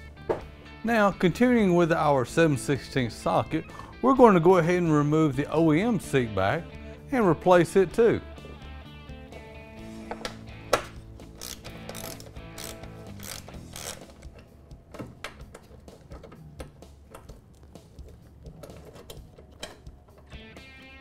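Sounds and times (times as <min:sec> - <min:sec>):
socket ratchet clicking: 0:10.8 - 0:20.4.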